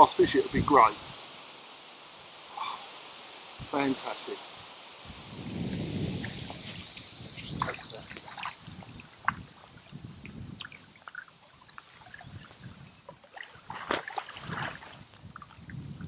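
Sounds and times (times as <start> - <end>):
water splashing and trickling: 0.0 - 16.0
loud splash: 5.3 - 9.5.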